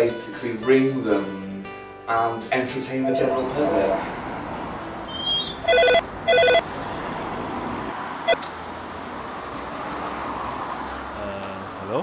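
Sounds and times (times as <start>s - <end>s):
street traffic: 2.6s - 12.0s
payphone double ring: 5.7s - 6.6s.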